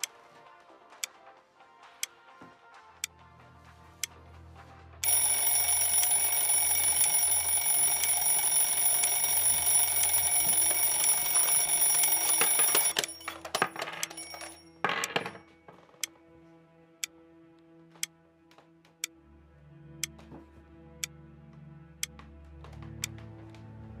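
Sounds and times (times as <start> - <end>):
alarm clock bells ringing: 5.0 - 15.4
clicks and knocks: 10.8 - 16.0.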